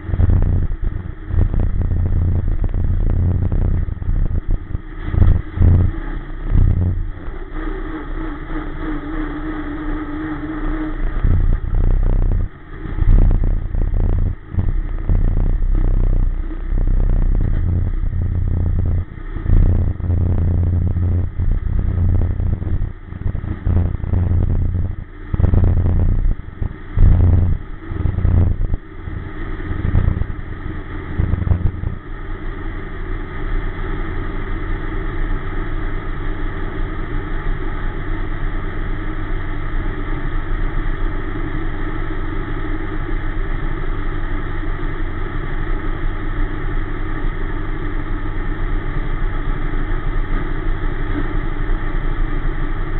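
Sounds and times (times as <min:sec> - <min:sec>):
race car engine revving and idling: 0:00.0 - 0:40.1.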